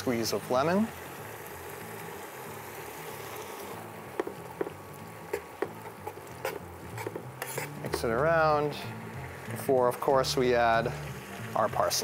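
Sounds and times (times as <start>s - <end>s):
food sizzling in a frying pan: 0.0s - 12.0s
metal tongs scraping a pan: 5.3s - 8.8s.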